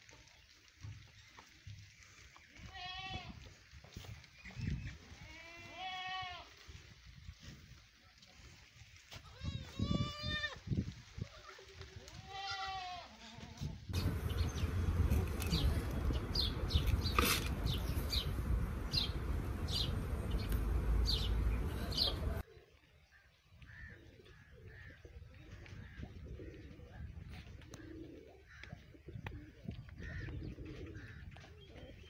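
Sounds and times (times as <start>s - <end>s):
goat kids bleating: 2.5s - 3.4s, 5.2s - 6.5s, 9.2s - 10.6s, 12.1s - 13.6s.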